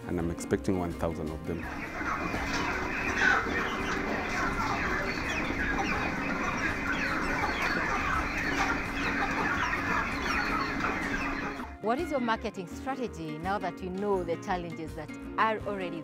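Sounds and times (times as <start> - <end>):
chickens clucking: 1.5 - 11.8.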